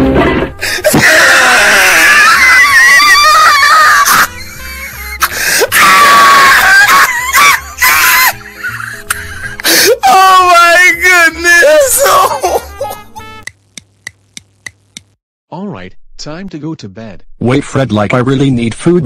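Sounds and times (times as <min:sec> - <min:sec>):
background music: 0:00.0 - 0:14.4
man screaming loudly: 0:00.9 - 0:04.3, 0:05.7 - 0:08.4, 0:09.8 - 0:12.6.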